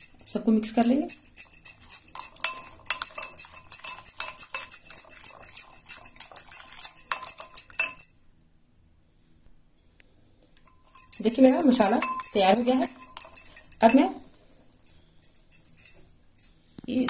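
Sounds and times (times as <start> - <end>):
spoon scraping glass bowl: 0.0 - 8.1, 10.8 - 14.0.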